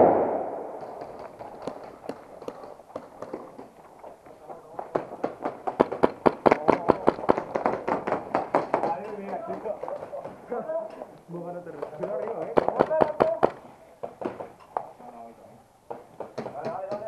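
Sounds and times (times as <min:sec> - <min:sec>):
loud bang echo: 0:00.0 - 0:01.2.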